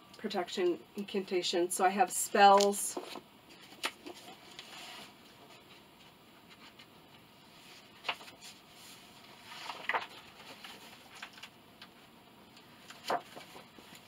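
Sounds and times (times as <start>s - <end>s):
paper pages rustling: 2.6s - 6.9s, 7.5s - 12.0s, 12.6s - 14.0s.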